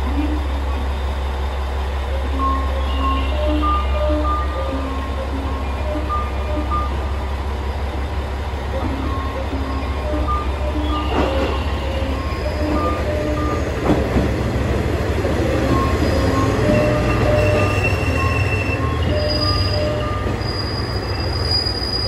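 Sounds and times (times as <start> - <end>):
diesel railcar rumbling: 0.0 - 22.0
brakes and wheels squealing: 15.5 - 22.0.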